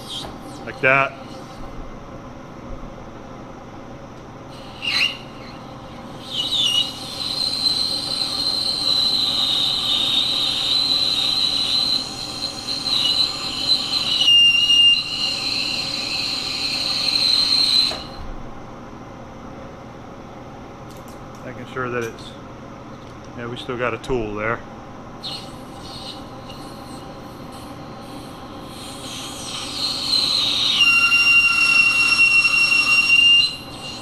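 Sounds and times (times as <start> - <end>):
lathe humming: 4.6 - 18.2, 25.3 - 34.0
lathe tool squealing on steel: 4.6 - 18.2, 25.2 - 34.0.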